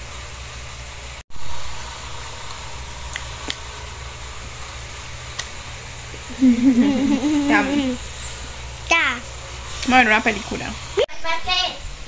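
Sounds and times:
electric fan whirring: 0.0s - 12.0s.

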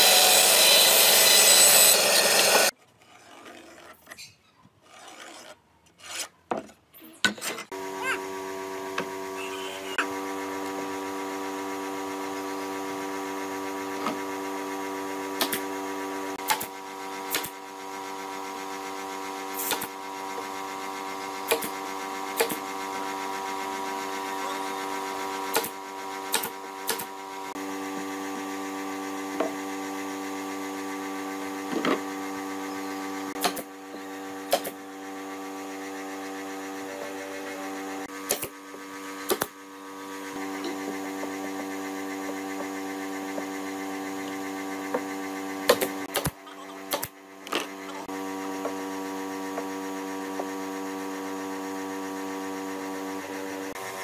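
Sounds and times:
air compressor motor hum: 7.7s - 54.0s
nail gun firing into wood: 33.4s - 33.7s, 34.4s - 34.8s, 38.2s - 38.6s, 39.2s - 39.6s, 45.7s - 47.2s.

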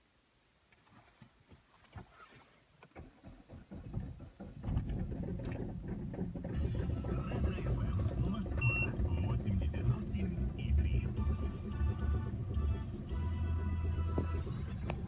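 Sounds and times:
diesel engine cranking and running: 2.9s - 15.0s.

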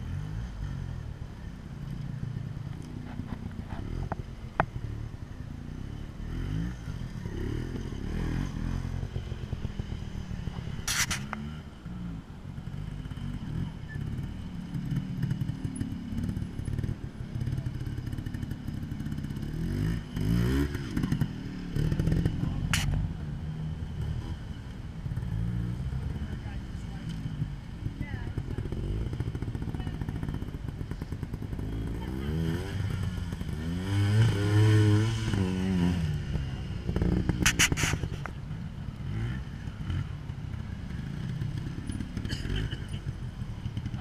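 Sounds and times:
motorcycle engine revving: 2.9s - 44.0s
sharp click: 10.9s - 11.4s, 22.7s - 23.0s, 37.4s - 38.3s.

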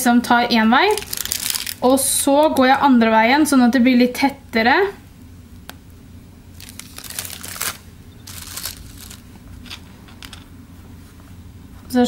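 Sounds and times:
plastic piping bag crinkling: 0.8s - 2.1s, 6.6s - 10.4s.

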